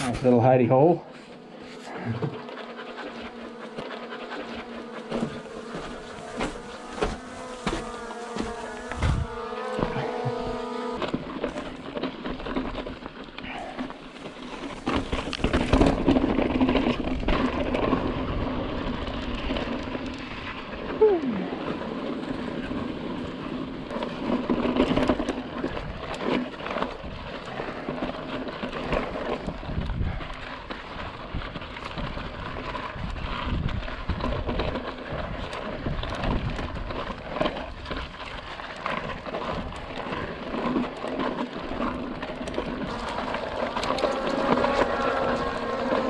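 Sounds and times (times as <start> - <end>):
bike tyres rolling on rock: 0.0 - 46.0
wind rumbling on microphone: 1.9 - 13.6, 14.2 - 46.0
bike knocks and rattles: 5.0 - 20.7.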